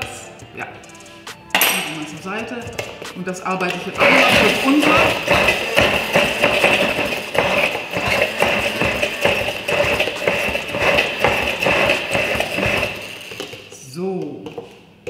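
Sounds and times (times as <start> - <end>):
immersion blender whining: 2.0 - 13.7.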